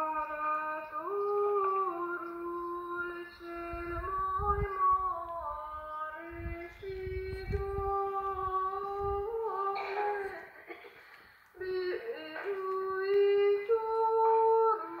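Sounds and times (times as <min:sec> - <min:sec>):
high voice singing a chant: 0:00.0 - 0:10.7, 0:11.6 - 0:15.0
low rumbling noise: 0:02.8 - 0:10.4.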